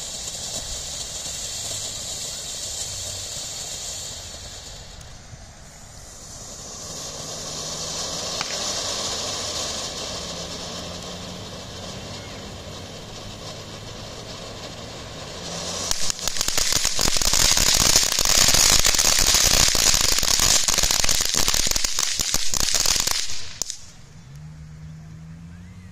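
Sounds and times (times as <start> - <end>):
firework fountain hissing: 0.0 - 24.2
dense crackling pops: 6.2 - 24.0.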